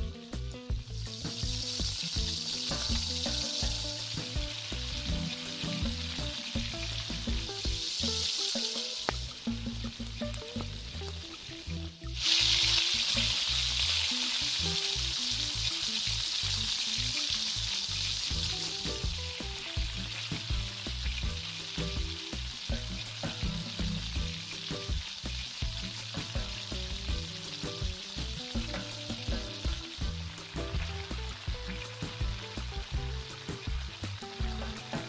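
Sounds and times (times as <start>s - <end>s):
background music with bass: 0.0s - 35.0s
rice hissing in hot pot: 0.8s - 35.0s.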